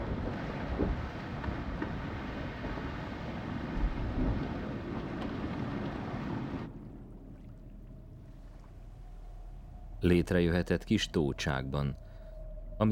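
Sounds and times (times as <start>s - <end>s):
underwater rumble: 0.0s - 12.9s
low hum: 2.7s - 12.9s.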